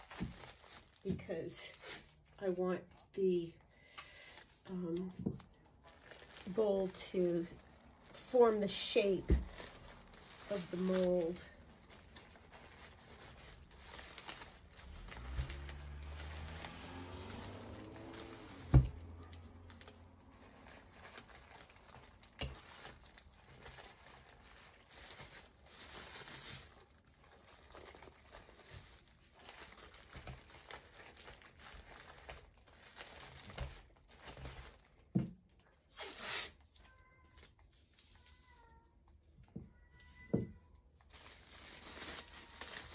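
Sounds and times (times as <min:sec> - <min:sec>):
plastic sheeting crinkling: 0:00.0 - 0:03.6, 0:04.2 - 0:42.9.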